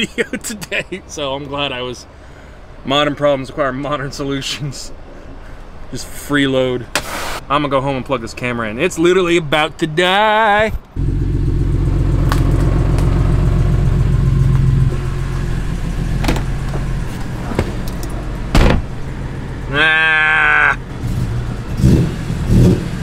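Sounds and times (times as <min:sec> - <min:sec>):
car engine idling: 0:11.0 - 0:22.4.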